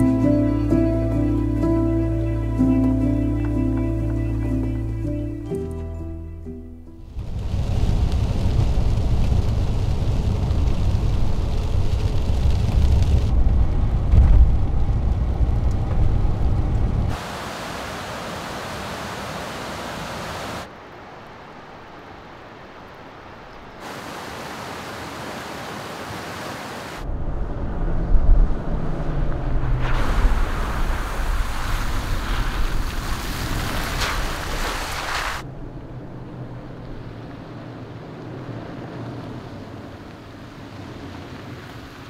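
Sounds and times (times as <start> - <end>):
road rumble inside truck cab: 7.0 - 17.2, 27.0 - 42.0
wind on microphone: 7.1 - 17.2, 27.0 - 42.0
rushing river water: 17.1 - 27.1, 29.4 - 42.0.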